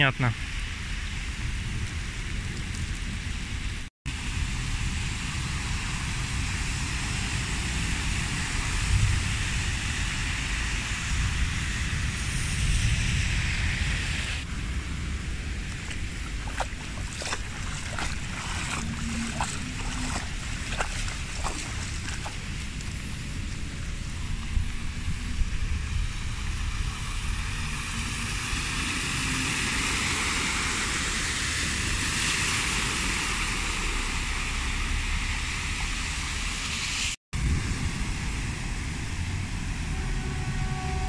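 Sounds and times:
wind rumbling on microphone: 0.0s - 41.0s
footsteps wading through water: 15.6s - 25.0s.

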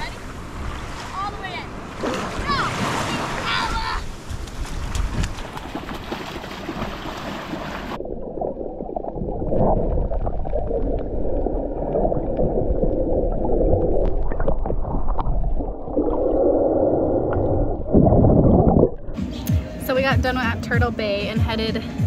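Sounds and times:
splashing in shallow surf: 0.0s - 8.0s
muffled underwater rushing: 0.0s - 19.2s.

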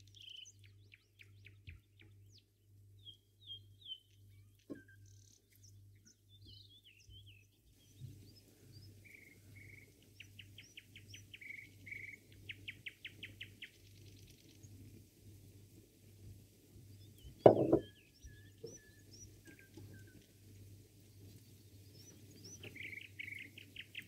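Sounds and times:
birds chirping and whistling: 17.8s - 20.2s, 22.0s - 24.0s.

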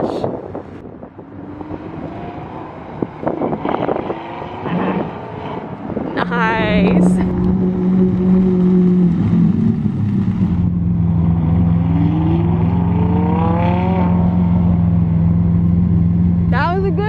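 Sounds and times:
car engine accelerating: 0.8s - 17.0s
car engine idling: 6.3s - 12.8s, 14.1s - 17.0s.

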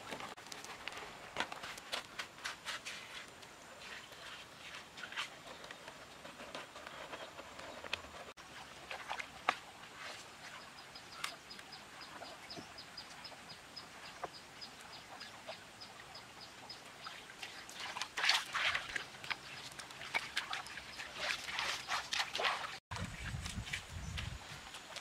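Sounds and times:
hands scraping wet gravel: 0.1s - 8.4s
splashing in shallow water: 1.6s - 12.7s, 15.1s - 25.0s.

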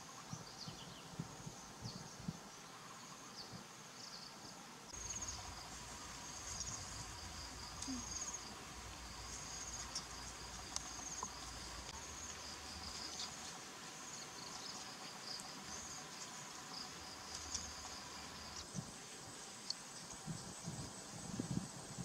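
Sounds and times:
insects chirping in short trills: 4.9s - 13.4s.

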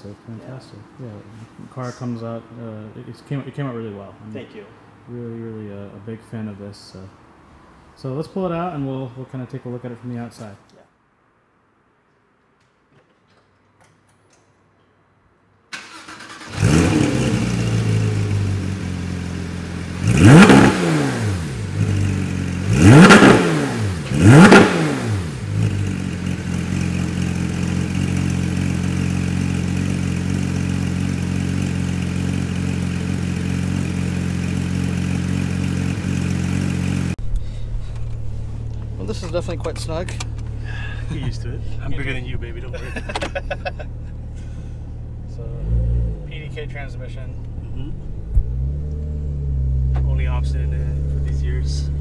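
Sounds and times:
car engine starting and revving: 15.7s - 52.0s.

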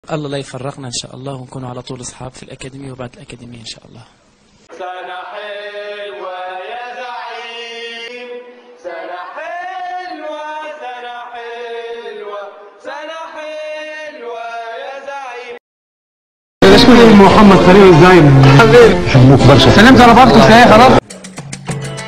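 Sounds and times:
people singing a chant-like tune: 4.7s - 15.6s.

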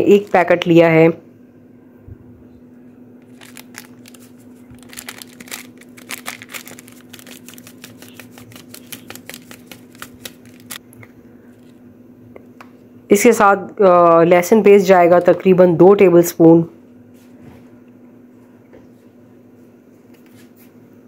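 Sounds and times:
foil sachet crinkling: 0.0s - 0.8s, 3.2s - 10.8s.

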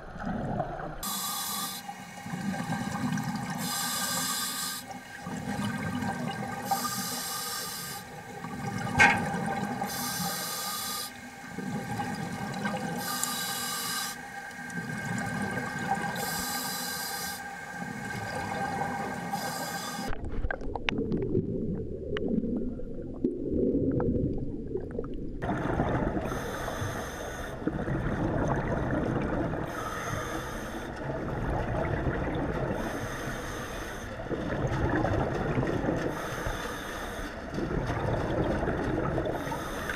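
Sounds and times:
deep underwater rumble: 0.0s - 1.0s, 20.1s - 30.4s, 31.0s - 39.9s
underwater exhaled bubbles: 0.0s - 1.1s, 1.9s - 7.4s, 8.1s - 10.5s, 11.2s - 13.4s, 14.2s - 16.9s, 17.5s - 39.9s.

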